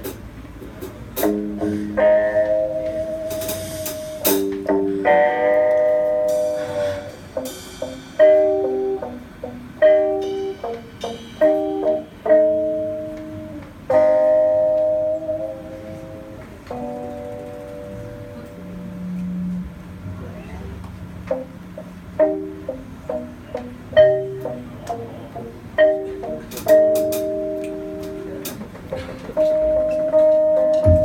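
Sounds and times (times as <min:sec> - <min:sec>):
bass guitar: 0:00.0 - 0:31.0
electric guitar chords: 0:01.2 - 0:20.0, 0:21.0 - 0:31.0
drum and cymbal hits: 0:02.9 - 0:05.0, 0:06.2 - 0:12.2, 0:30.7 - 0:31.0.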